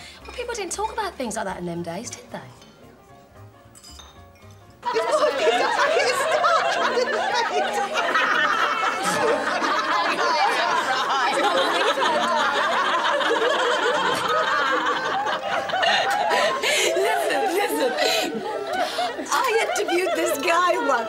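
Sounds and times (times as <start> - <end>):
women laughing and giggling: 4.8 - 21.0
women chattering: 16.9 - 21.0.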